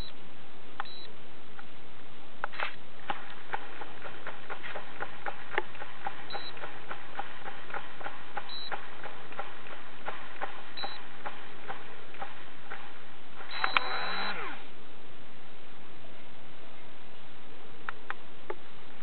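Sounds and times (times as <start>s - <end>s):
short electronic beep: 0.8s - 1.1s, 6.3s - 6.6s, 8.5s - 8.8s, 10.8s - 11.0s, 13.5s - 14.4s
fishing reel ticking: 6.3s - 7.0s.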